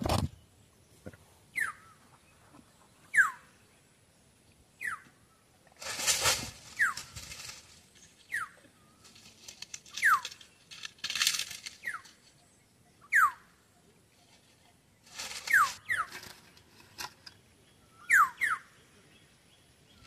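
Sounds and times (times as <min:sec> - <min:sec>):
rustling and handling noise: 0:05.8 - 0:08.2, 0:09.0 - 0:12.4, 0:14.2 - 0:17.4.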